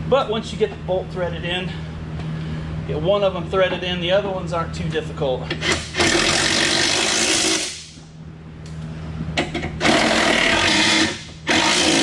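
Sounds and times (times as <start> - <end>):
power tool running down nuts: 9.8 - 12.0.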